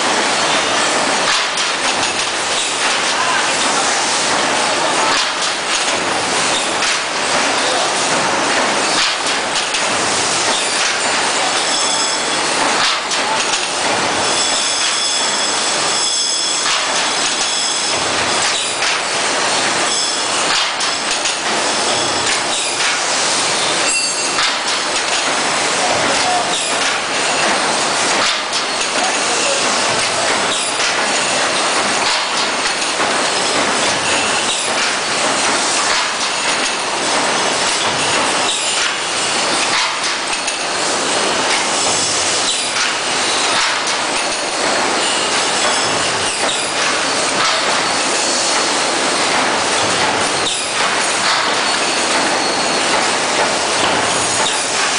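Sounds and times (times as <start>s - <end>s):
machine clattering and knocking: 0.0s - 54.9s
high machine squeal: 11.7s - 12.5s, 14.2s - 16.7s, 17.4s - 18.8s, 19.9s - 20.4s, 23.6s - 24.4s, 45.0s - 49.3s, 51.5s - 53.1s.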